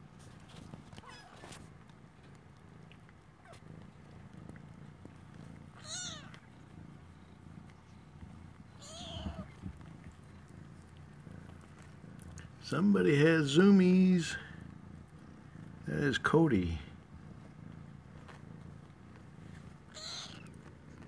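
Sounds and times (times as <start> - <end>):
faint low purr: 0.0 - 21.0
kittens mewing: 5.4 - 20.7.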